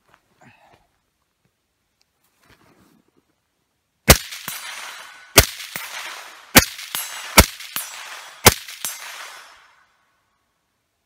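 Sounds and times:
suppressed rifle shots: 4.1s - 9.8s
bullet ringing steel target: 4.1s - 9.9s.

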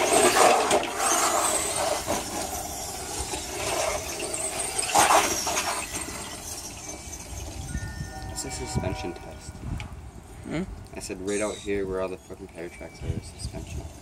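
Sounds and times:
electric motor whining: 0.0s - 9.8s.

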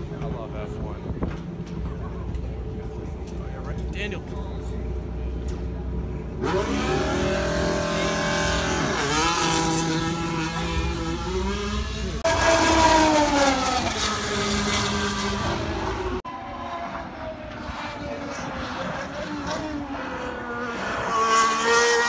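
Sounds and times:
race car engine at high revs: 4.9s - 22.0s.

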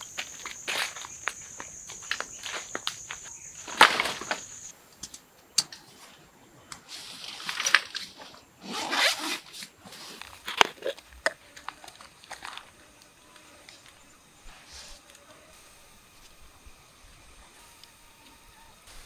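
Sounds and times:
high insect buzz: 0.0s - 4.7s, 10.3s - 19.0s
zipper rasping: 8.6s - 9.5s.

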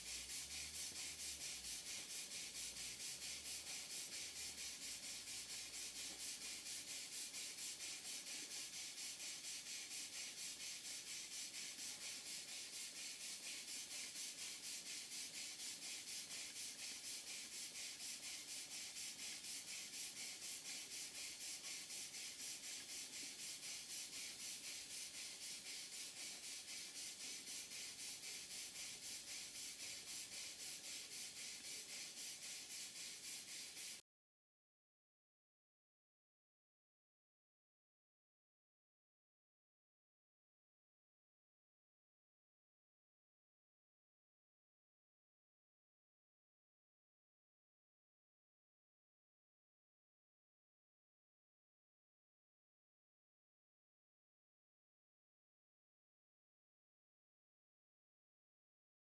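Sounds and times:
steam engine exhaust puffing: 0.0s - 34.0s.

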